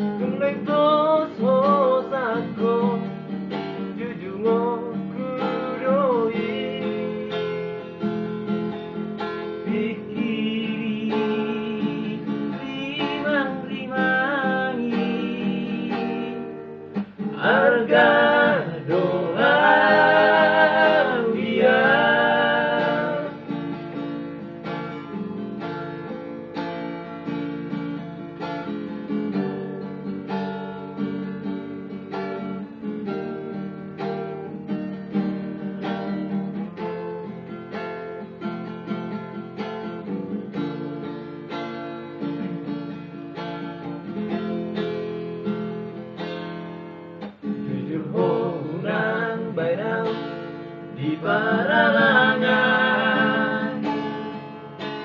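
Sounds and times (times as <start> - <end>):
acoustic guitar: 0.0 - 55.0
men singing together: 17.3 - 23.4, 47.7 - 50.3, 50.9 - 54.0.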